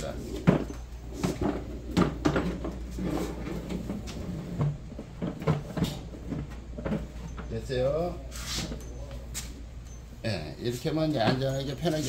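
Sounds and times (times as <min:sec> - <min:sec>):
steady low hum: 0:00.0 - 0:12.0
metal clunks and knocks: 0:00.4 - 0:02.9, 0:03.6 - 0:07.5.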